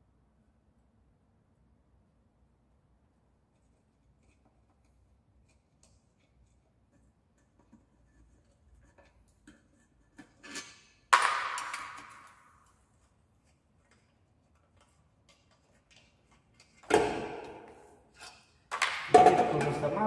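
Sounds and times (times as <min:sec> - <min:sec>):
metal object clanging: 0:18.8 - 0:20.0.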